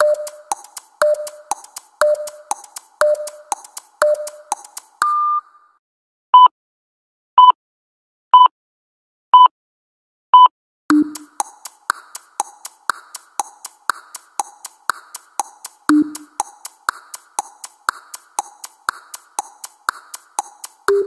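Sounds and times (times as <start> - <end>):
clicking electronic music beat: 0.0 - 5.1, 10.9 - 21.0
electronic timer beeps: 0.0 - 5.5, 10.4 - 11.5, 15.9 - 16.5, 20.4 - 21.0.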